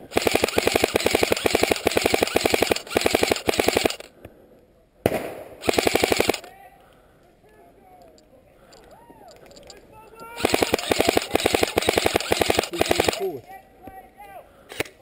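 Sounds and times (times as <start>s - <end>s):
airsoft rifle firing bursts: 0.0s - 4.1s, 5.1s - 6.5s, 10.4s - 13.4s.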